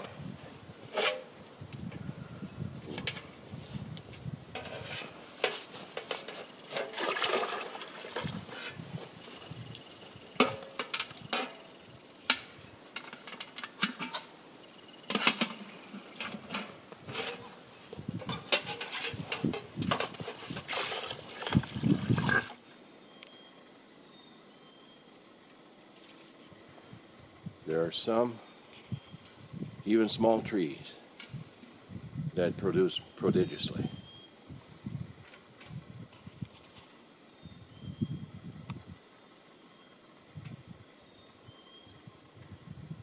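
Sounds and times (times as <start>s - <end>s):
metal pails clanking: 4.6s - 8.8s, 10.4s - 11.7s, 18.2s - 22.6s
liquid pouring into bucket: 6.7s - 8.4s, 20.6s - 22.6s.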